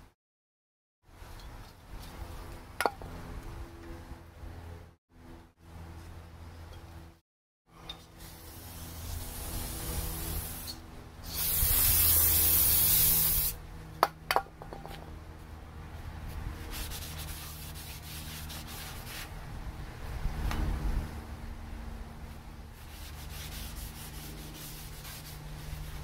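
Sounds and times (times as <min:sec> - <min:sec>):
loud steady air hiss: 0:08.2 - 0:13.6.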